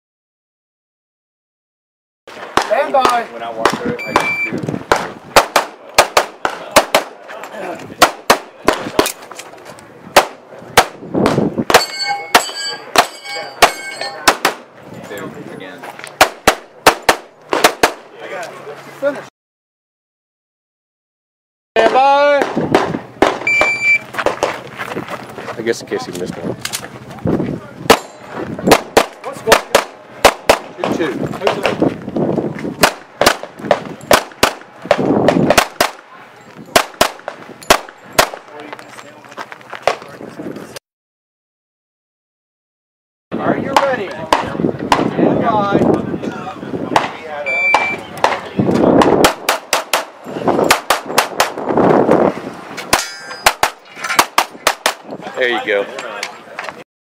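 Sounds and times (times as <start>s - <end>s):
pistol shots: 2.5s - 7.2s, 8.0s - 9.2s, 10.1s - 14.7s, 16.2s - 18.1s, 27.9s - 31.8s, 32.8s - 36.0s, 36.7s - 38.5s.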